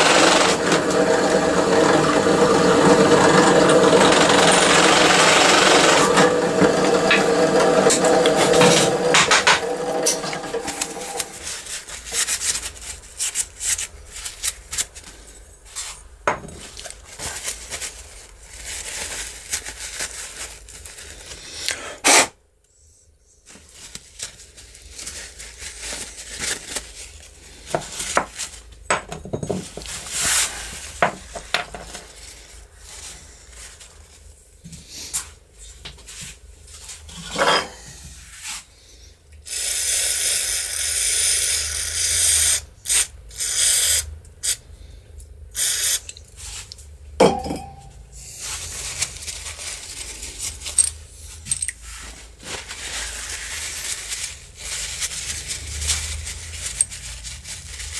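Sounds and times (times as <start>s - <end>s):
power tool motor running: 0.0s - 11.4s
paper towel rubbing: 6.1s - 16.1s, 29.9s - 31.0s, 51.3s - 57.9s.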